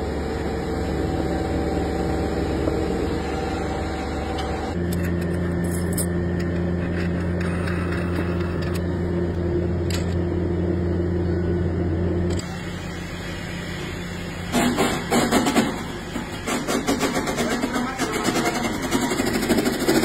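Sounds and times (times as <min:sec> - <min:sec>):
electric machine hum: 0:00.0 - 0:20.0.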